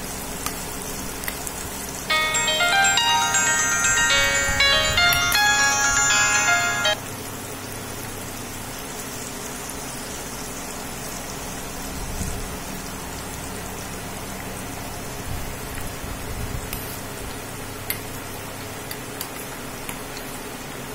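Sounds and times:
background music: 0:02.1 - 0:07.0.

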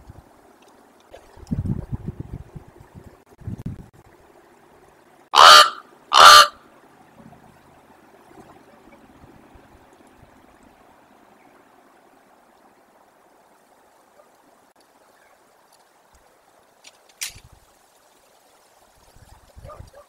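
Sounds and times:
raven calling: 0:05.3 - 0:06.6.

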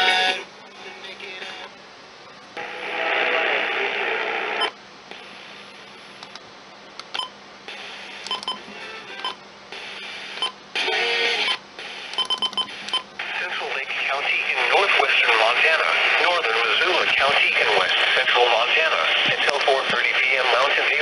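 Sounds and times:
radio tuning blips: 0:02.6 - 0:05.6, 0:09.8 - 0:21.0
radio station snatches: 0:02.6 - 0:05.8, 0:11.8 - 0:21.0
radio hiss: 0:02.6 - 0:06.2, 0:07.7 - 0:08.3, 0:09.7 - 0:21.0.

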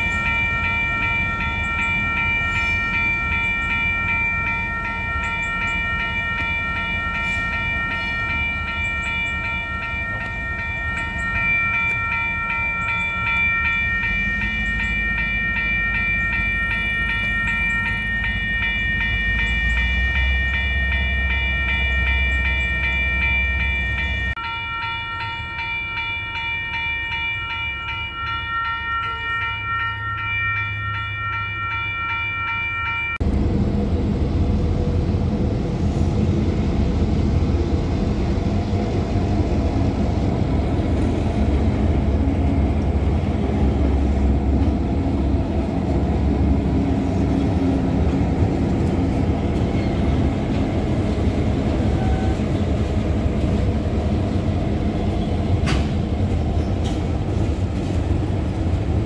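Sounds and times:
railroad crossing bell ringing: 0:00.0 - 0:33.4, 0:39.2 - 0:59.0
diesel locomotive rumble: 0:00.0 - 0:59.0
train cars rolling: 0:00.0 - 0:59.0.

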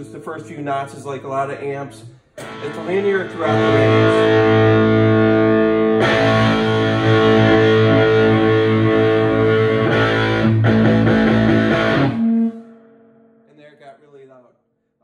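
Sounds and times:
distorted electric guitar chords: 0:02.4 - 0:13.5.

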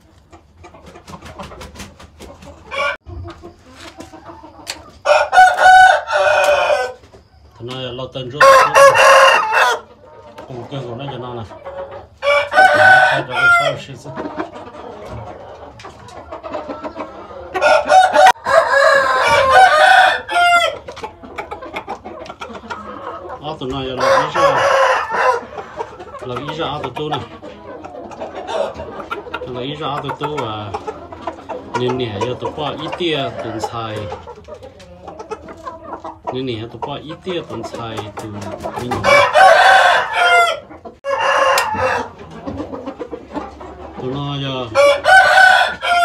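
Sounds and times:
roosters clucking: 0:00.0 - 0:46.0
rooster crowing: 0:05.0 - 0:07.0, 0:08.4 - 0:09.9, 0:12.2 - 0:13.8, 0:17.6 - 0:20.8, 0:24.0 - 0:25.4, 0:39.0 - 0:42.1, 0:44.8 - 0:46.0.

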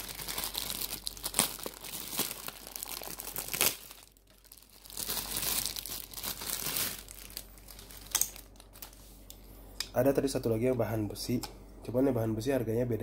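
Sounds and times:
plastic bag crinkling: 0:00.0 - 0:09.0.

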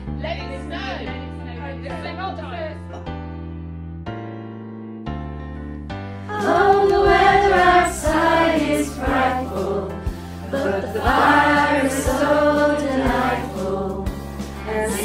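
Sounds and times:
women singing together: 0:06.3 - 0:15.0.

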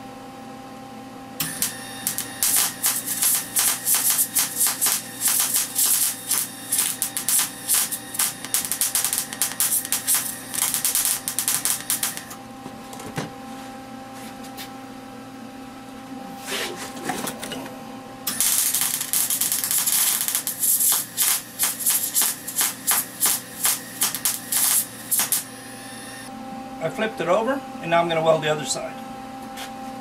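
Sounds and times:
steady hum: 0:00.0 - 0:30.0
welder arc crackling: 0:01.4 - 0:12.4, 0:18.3 - 0:26.2.

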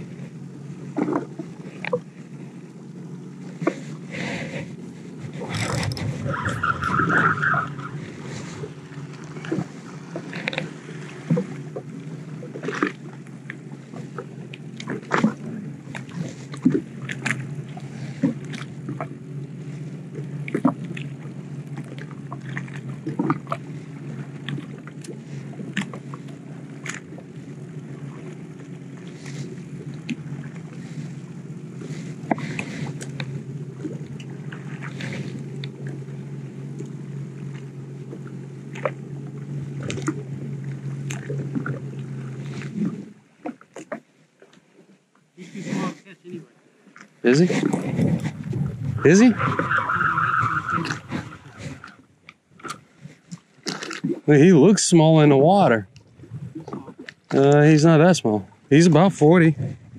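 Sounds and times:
jet ski engine idling: 0:00.0 - 0:44.3, 0:45.0 - 0:59.9
waves slapping against hull: 0:00.0 - 0:59.9.

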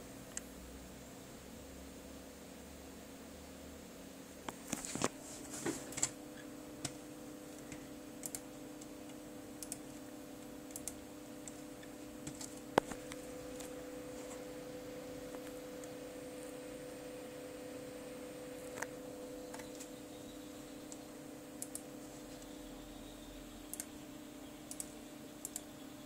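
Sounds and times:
steady low hum: 0:00.0 - 0:26.0
computer mouse clicks: 0:07.6 - 0:09.8, 0:10.7 - 0:13.7, 0:21.6 - 0:22.5, 0:24.7 - 0:25.7.

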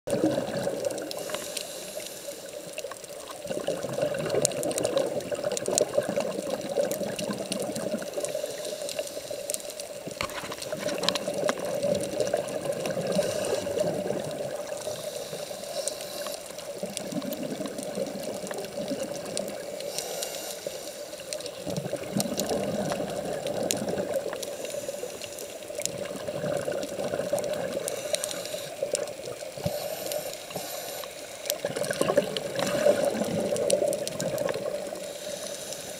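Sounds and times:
underwater hum: 0:00.1 - 0:35.9
sharp underwater clicks: 0:00.6 - 0:35.9.

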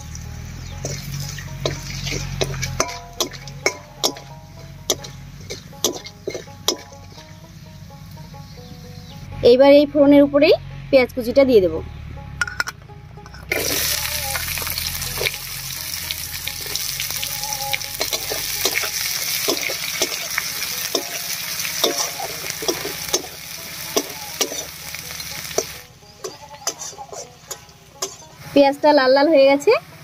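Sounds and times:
onions sizzling in hot oil: 0:00.0 - 0:07.6, 0:13.5 - 0:28.7
spatula scraping against wok: 0:00.8 - 0:07.3, 0:17.9 - 0:28.6.

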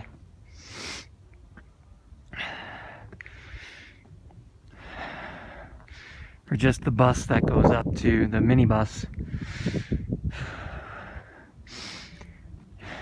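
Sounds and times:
person breathing: 0:02.3 - 0:04.1, 0:04.7 - 0:06.4, 0:09.2 - 0:13.0.

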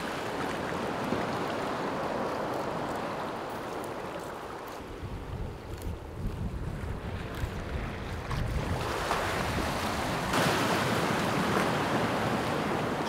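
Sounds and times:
wind rumbling on microphone: 0:00.0 - 0:13.0
waves washing over rocky shore: 0:07.2 - 0:13.0.

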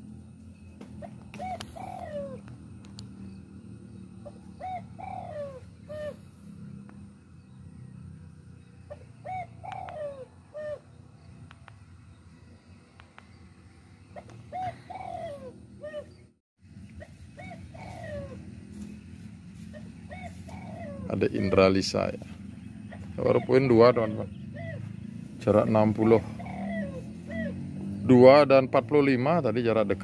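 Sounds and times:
dove cooing: 0:00.8 - 0:07.0, 0:08.8 - 0:11.6, 0:14.1 - 0:16.3, 0:16.9 - 0:29.8.

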